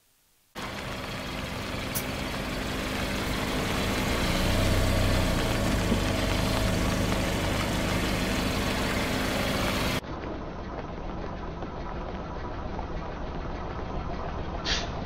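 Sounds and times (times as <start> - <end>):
car engine humming: 0.6 - 10.0.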